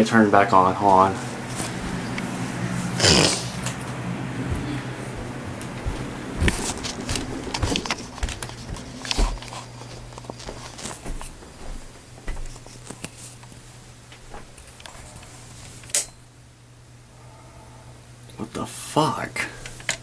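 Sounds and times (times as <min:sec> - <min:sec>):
steady low hum: 0:00.0 - 0:20.0
footsteps: 0:00.7 - 0:13.4.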